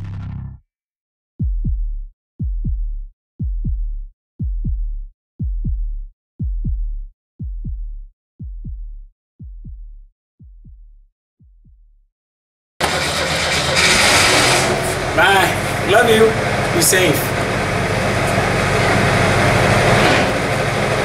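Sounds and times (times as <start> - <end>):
heartbeat thumps: 1.4 - 11.9.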